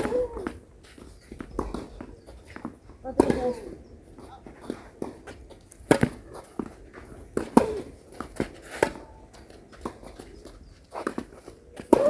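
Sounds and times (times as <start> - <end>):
racket hitting tennis ball: 2.6 - 3.7, 4.6 - 10.1, 11.0 - 12.0.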